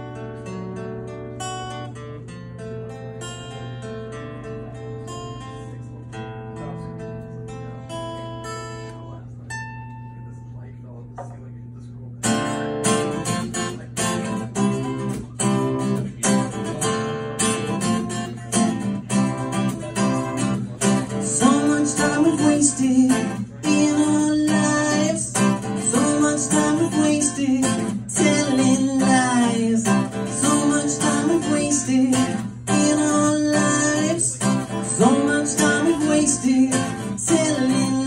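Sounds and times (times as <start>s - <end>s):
acoustic guitar strumming: 0.0s - 11.6s, 12.2s - 38.0s
person singing: 21.0s - 38.0s.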